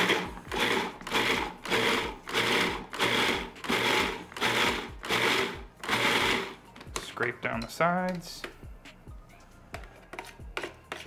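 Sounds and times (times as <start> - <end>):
food processor whirring and chopping: 0.0 - 6.6.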